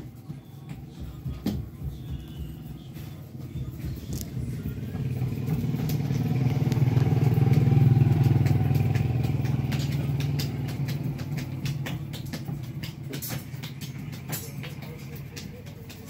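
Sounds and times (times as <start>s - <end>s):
vehicle engine passing by: 4.2s - 12.0s.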